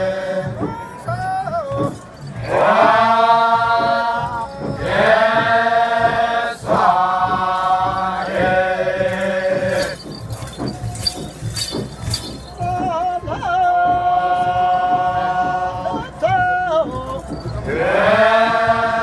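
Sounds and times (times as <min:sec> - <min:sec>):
men chanting in unison: 0:00.0 - 0:01.1, 0:01.8 - 0:10.0, 0:13.6 - 0:19.0.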